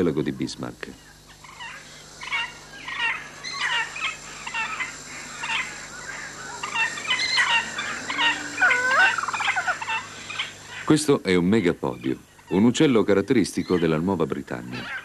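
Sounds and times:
short rapid bird calls: 0:01.0 - 0:12.6.

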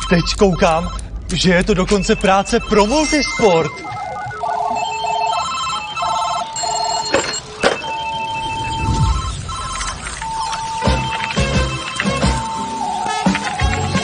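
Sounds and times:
telephones ringing: 0:00.0 - 0:14.0.

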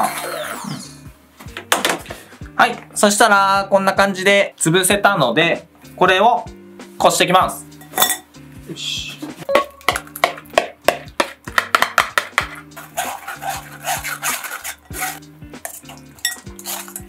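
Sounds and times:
light background music: 0:00.0 - 0:17.0
metal spoon scraping a sieve: 0:12.4 - 0:17.0.

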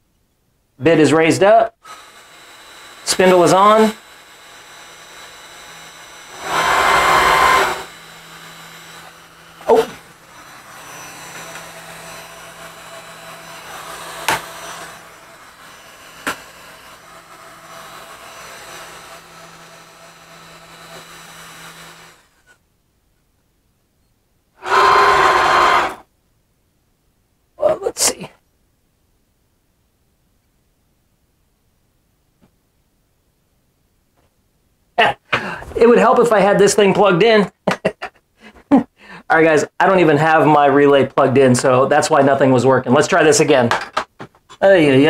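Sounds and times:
low electrical hum: 0:00.0 - 0:45.0
loud electric motor bursts: 0:01.8 - 0:22.6, 0:24.6 - 0:26.1.

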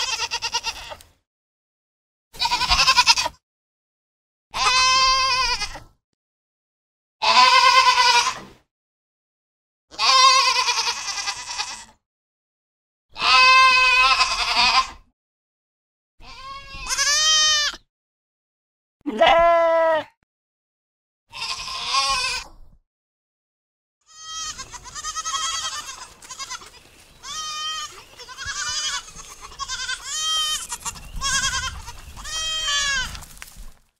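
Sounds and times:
goat bleating: 0:00.0 - 0:01.0, 0:02.4 - 0:03.4, 0:04.6 - 0:05.8, 0:07.2 - 0:08.4, 0:09.9 - 0:12.0, 0:13.1 - 0:15.0, 0:16.2 - 0:17.8, 0:19.1 - 0:20.1, 0:21.3 - 0:22.5, 0:24.1 - 0:33.3.

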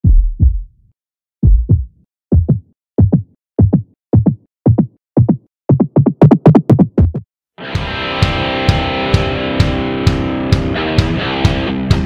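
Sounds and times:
deep drum machine thumps: 0:00.0 - 0:07.3.

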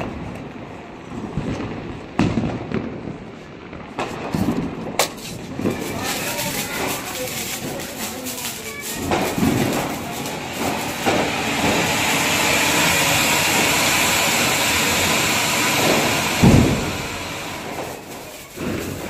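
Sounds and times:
firecracker bang: 0:01.0 - 0:19.0
fountain firework hissing: 0:04.1 - 0:19.0.

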